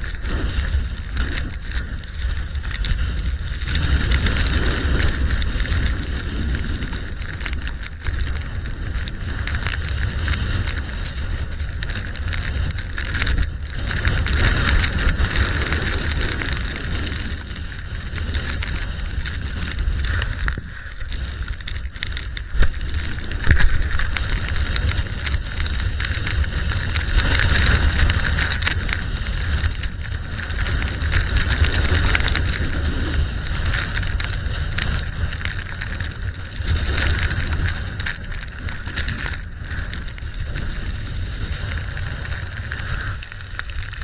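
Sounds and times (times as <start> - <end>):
wind buffeting microphone: 0.0 - 44.0.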